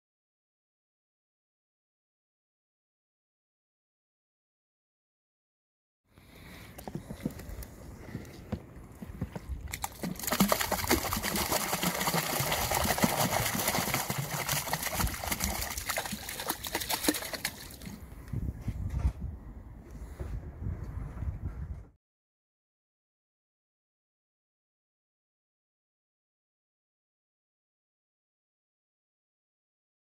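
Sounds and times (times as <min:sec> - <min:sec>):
fish splashing into water: 0:09.7 - 0:18.0
wet flapping: 0:09.7 - 0:18.0.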